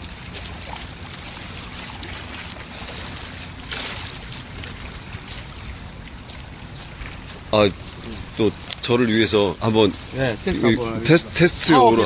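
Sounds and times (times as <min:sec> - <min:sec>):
wind rumble on microphone: 0:00.0 - 0:12.0
footsteps scuffing on dirt path: 0:03.8 - 0:10.9.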